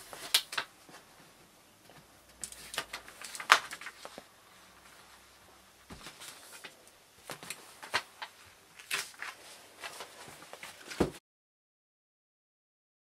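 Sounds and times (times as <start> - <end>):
paper rustling and crinkling: 2.4 - 5.3, 5.9 - 11.2.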